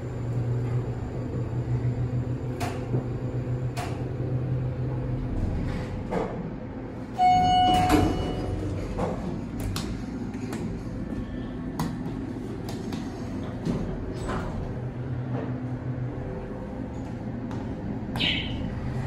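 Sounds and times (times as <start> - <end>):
elevator electronic tone: 7.0 - 9.0.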